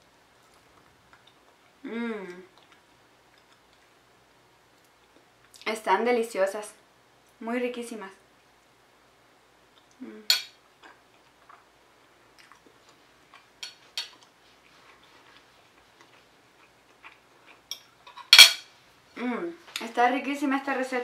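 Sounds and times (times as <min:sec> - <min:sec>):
person chewing: 0:00.4 - 0:04.0, 0:12.3 - 0:18.0
cutlery clatter: 0:17.7 - 0:18.7.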